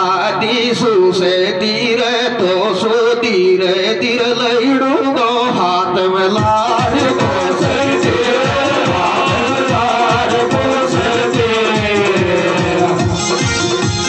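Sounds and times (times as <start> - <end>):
man singing through microphone: 0.0 - 13.3
instrumental backing: 6.2 - 14.0.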